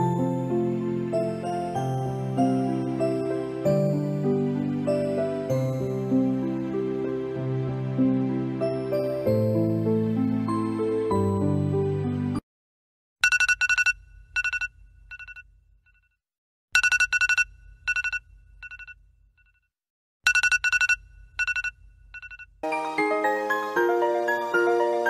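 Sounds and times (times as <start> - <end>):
music: 0.0 - 12.4, 22.6 - 25.0.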